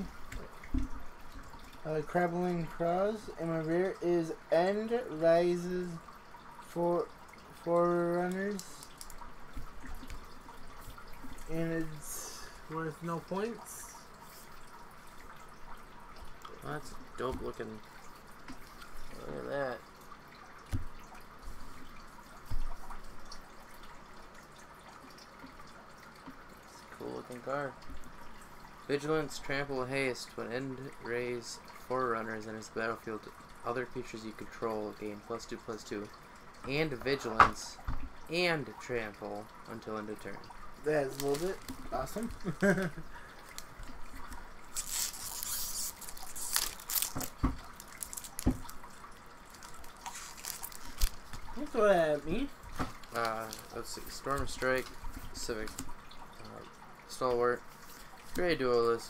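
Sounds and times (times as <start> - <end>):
foil wrappers rustling: 41.0 - 41.6, 44.7 - 48.6, 49.6 - 51.3
sharp crackles: 44.7 - 48.8, 49.6 - 51.4.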